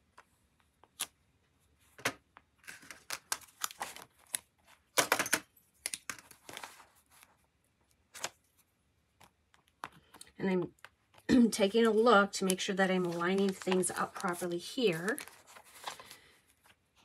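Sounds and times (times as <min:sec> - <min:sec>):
paper rustling and crinkling: 0:02.6 - 0:04.9, 0:06.2 - 0:07.5, 0:12.6 - 0:17.0.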